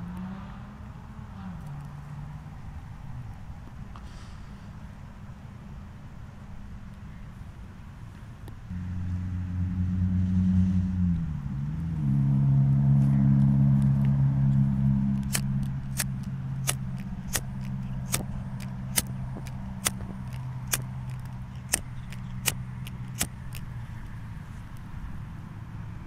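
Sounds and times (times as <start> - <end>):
low held drone: 8.6 - 26.0
sharp crackling clicks: 15.1 - 24.9.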